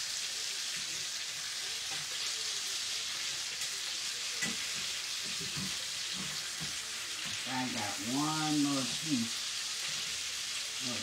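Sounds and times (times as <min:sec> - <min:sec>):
chicken sizzling in oil: 0:00.0 - 0:11.0.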